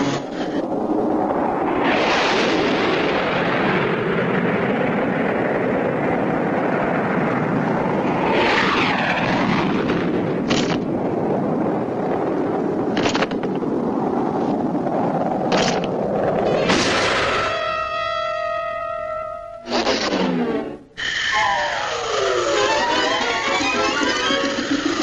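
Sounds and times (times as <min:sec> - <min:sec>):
diving aircraft roar: 0:00.0 - 0:17.9
falling whistle: 0:21.0 - 0:24.5.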